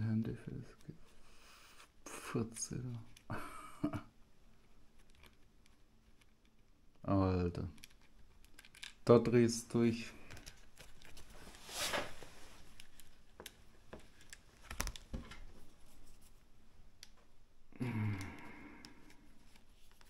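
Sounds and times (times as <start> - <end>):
faint clicks and taps: 12.7 - 17.4
person humming: 17.7 - 19.0.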